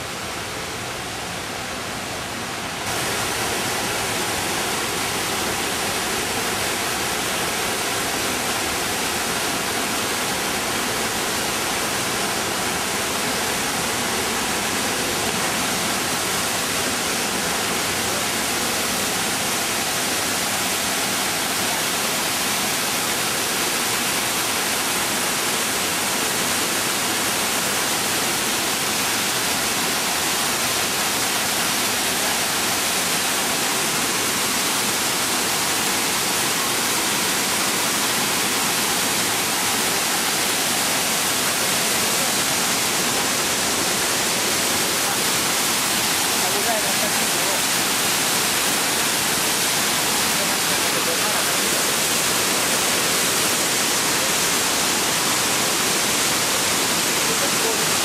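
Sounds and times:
waterfall pouring onto rocks: 2.9s - 58.0s.

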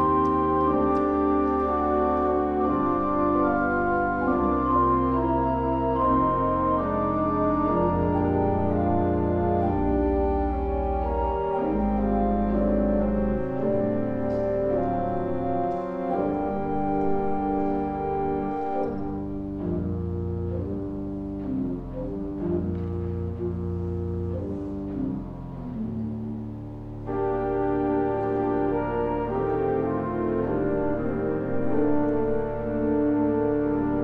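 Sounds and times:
organ playing sustained chords: 0.0s - 34.0s.

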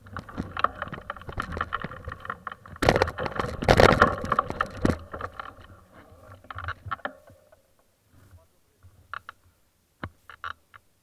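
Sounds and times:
bike tyres crunching gravel: 0.0s - 6.9s.

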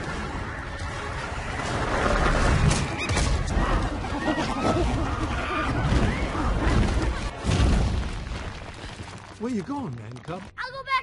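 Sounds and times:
crashes and thuds: 4.8s - 9.4s.

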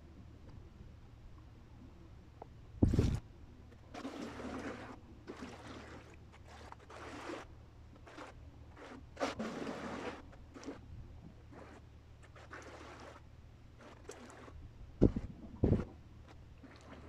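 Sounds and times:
low steady rumble: 0.0s - 6.6s, 12.8s - 17.0s.

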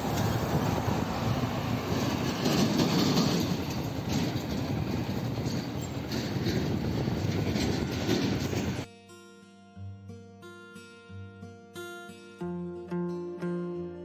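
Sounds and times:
bus engine pulling away: 0.0s - 8.8s
road traffic noise: 0.0s - 8.9s.

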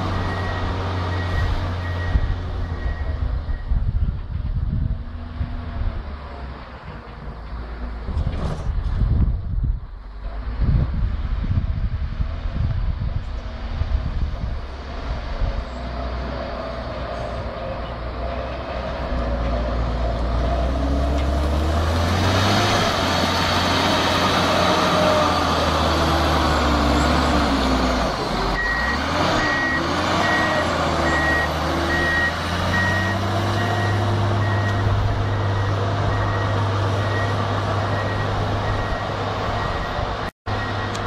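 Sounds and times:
diesel engine revving: 0.0s - 6.9s, 10.2s - 41.0s
reversing beeper: 28.5s - 41.0s.

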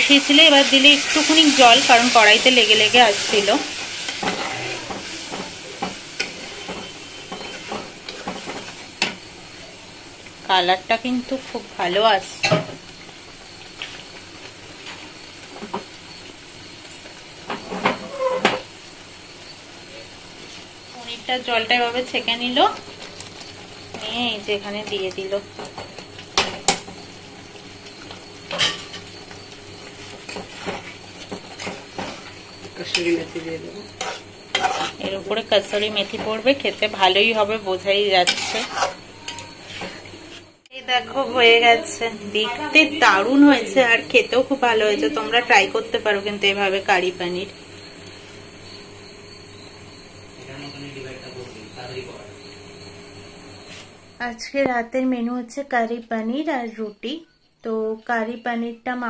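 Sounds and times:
curry sizzling: 0.0s - 54.2s
metal spatula scraping a pan: 1.2s - 8.7s, 17.6s - 18.7s, 33.9s - 36.1s, 37.8s - 40.4s
metal utensils clinking on pan: 38.2s - 39.5s.

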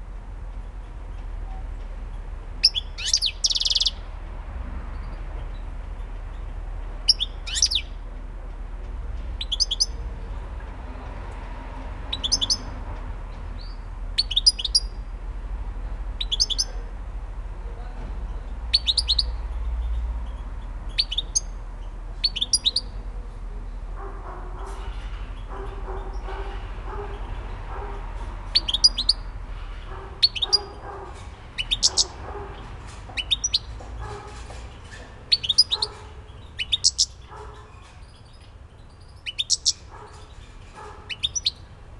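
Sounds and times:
goldfinch chirping: 2.6s - 4.0s, 7.0s - 8.0s, 9.4s - 10.0s, 12.1s - 12.7s, 13.6s - 15.0s, 16.2s - 16.8s, 18.7s - 21.6s, 22.2s - 23.0s, 28.5s - 29.3s, 30.2s - 30.8s, 31.6s - 32.2s, 33.1s - 33.8s, 35.3s - 40.4s, 41.0s - 41.7s.

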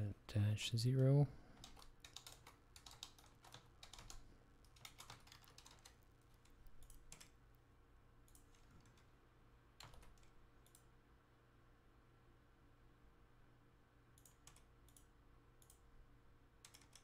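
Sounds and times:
computer keyboard typing: 1.6s - 7.4s, 8.3s - 9.1s, 9.8s - 10.9s, 14.2s - 15.8s, 16.6s - 17.0s.

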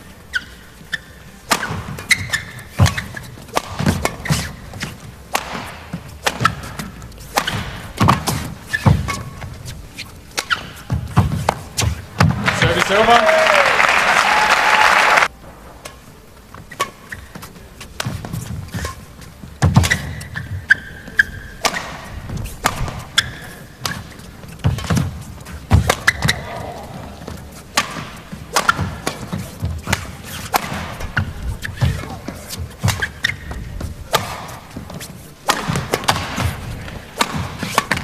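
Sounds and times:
racket hitting shuttlecock: 0.4s - 9.6s, 10.3s - 13.1s, 19.6s - 38.0s
crowd applause: 12.4s - 15.3s
footfalls on court: 17.1s - 38.0s.

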